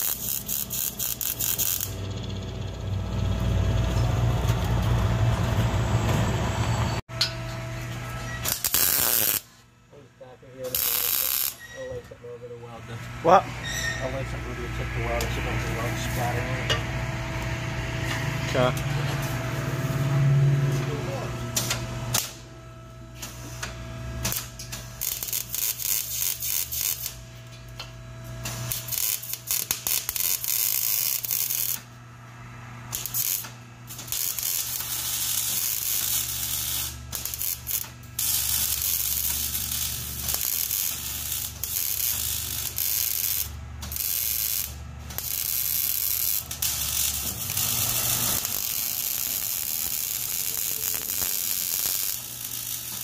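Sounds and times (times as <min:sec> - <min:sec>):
welder arc crackling: 0:00.0 - 0:02.8, 0:08.4 - 0:09.6, 0:10.5 - 0:11.6, 0:24.2 - 0:27.2, 0:28.4 - 0:31.9, 0:32.9 - 0:53.0.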